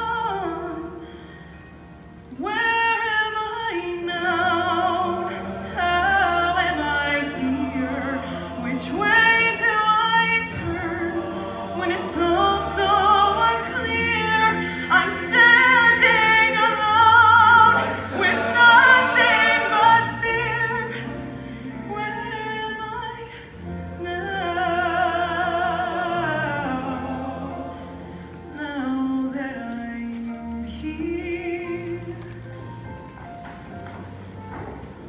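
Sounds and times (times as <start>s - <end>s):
choir harmonies: 0.0s - 34.1s
woman singing with vibrato: 2.4s - 21.2s.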